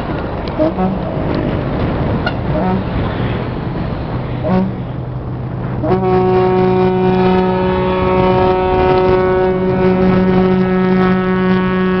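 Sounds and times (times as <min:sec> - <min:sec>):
moving vehicle road noise: 0:00.0 - 0:12.0
vehicle horn long blast: 0:05.8 - 0:12.0.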